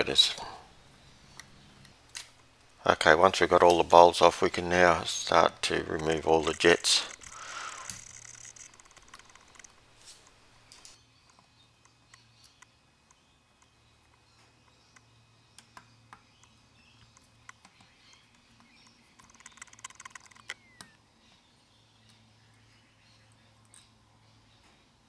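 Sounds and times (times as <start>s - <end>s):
screwdriver and jets clicking: 6.0s - 12.7s.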